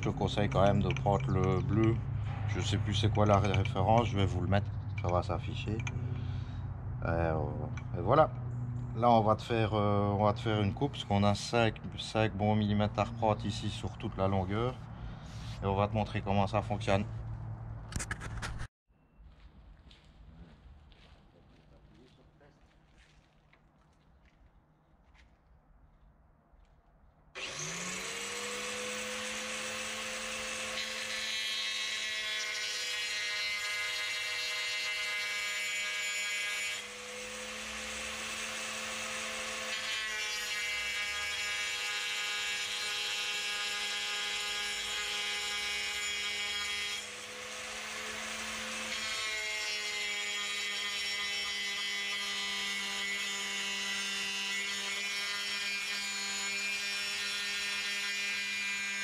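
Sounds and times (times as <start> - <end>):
electric tile saw whining: 27.4 - 59.0.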